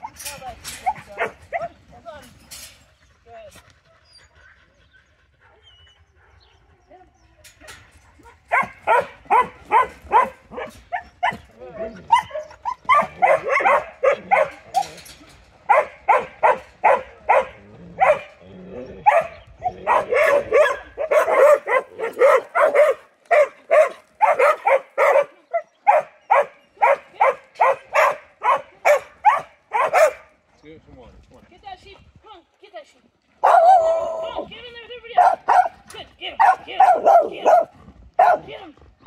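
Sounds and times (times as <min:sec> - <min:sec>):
dog barking: 0:08.5 - 0:11.4, 0:12.1 - 0:14.6, 0:15.7 - 0:18.4, 0:19.1 - 0:30.3, 0:33.4 - 0:33.8, 0:35.2 - 0:35.8, 0:36.4 - 0:38.5.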